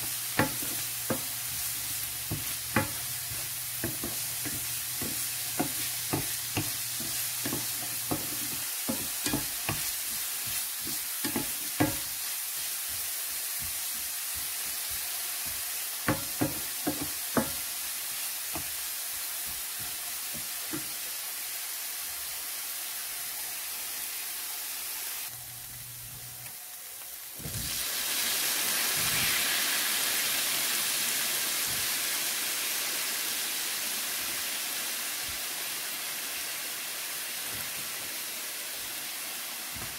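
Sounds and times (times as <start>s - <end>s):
onion sizzling in hot oil: 0.0s - 39.9s
wooden spatula knocking on pan: 0.3s - 12.2s, 12.8s - 17.7s.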